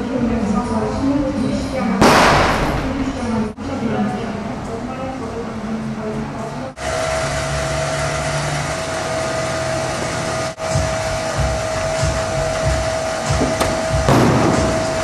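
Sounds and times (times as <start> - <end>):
mid-pitched hum: 0.0 - 15.0.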